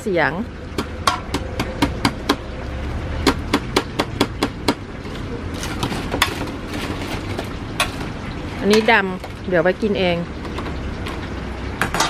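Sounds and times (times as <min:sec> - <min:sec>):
metal tongs tapping fried pieces: 0:03.2 - 0:11.2.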